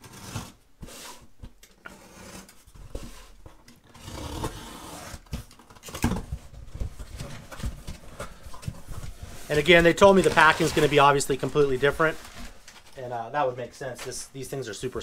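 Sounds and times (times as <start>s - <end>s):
cardboard and paper rustling: 5.3s - 13.2s.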